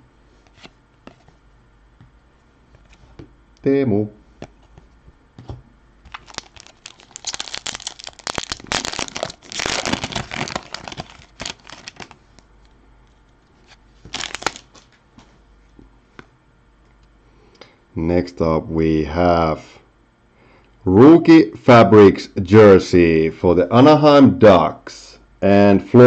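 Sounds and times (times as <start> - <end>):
foil wrapper tearing and crinkling: 6.1 - 12.4, 13.6 - 14.9.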